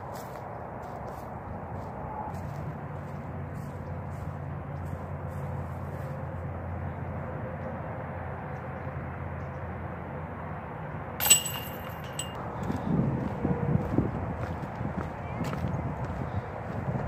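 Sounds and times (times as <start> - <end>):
chains rattling in metal basket: 11.2 - 12.4.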